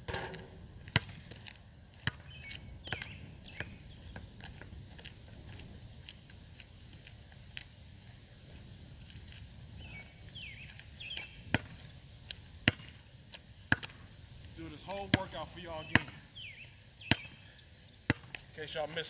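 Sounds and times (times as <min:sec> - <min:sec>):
basketball bouncing on asphalt: 0:00.0 - 0:07.6, 0:10.6 - 0:14.1, 0:14.8 - 0:19.0
bird chirps: 0:02.2 - 0:04.2, 0:09.8 - 0:11.5, 0:14.8 - 0:18.1.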